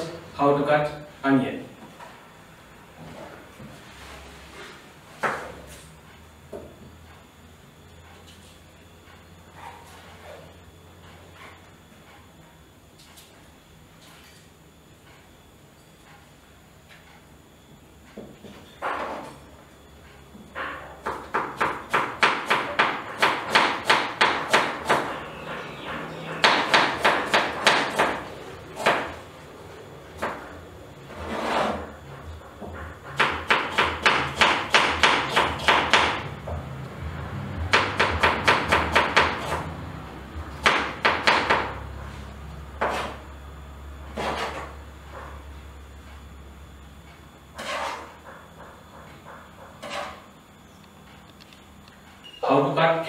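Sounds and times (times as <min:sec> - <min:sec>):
knife chopping onion on board: 0:21.0 - 0:25.1, 0:26.4 - 0:29.2, 0:33.1 - 0:36.2, 0:37.7 - 0:39.7, 0:42.8 - 0:43.2, 0:44.2 - 0:45.4, 0:47.6 - 0:50.2.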